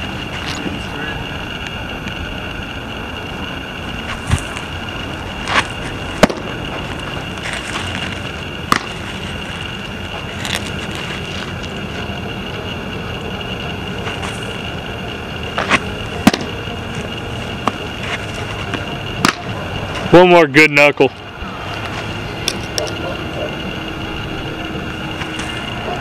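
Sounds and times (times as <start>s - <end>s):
faint high whine: 0.0s - 26.0s
steady outdoor hiss: 0.0s - 26.0s
baseballs smacking into mitt: 6.2s - 6.5s, 8.7s - 9.0s, 15.6s - 16.5s, 19.2s - 19.5s.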